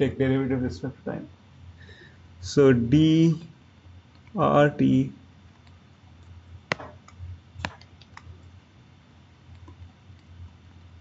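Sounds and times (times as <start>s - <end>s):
low steady hum: 0.0s - 11.0s
clicks and taps on tablet: 6.7s - 8.3s.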